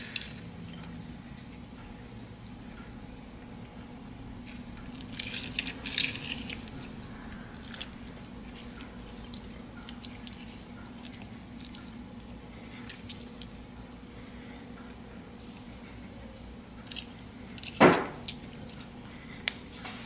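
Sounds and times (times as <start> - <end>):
juice dripping: 0.0 - 19.8
lemon squeezed crackling wetly: 4.4 - 19.7.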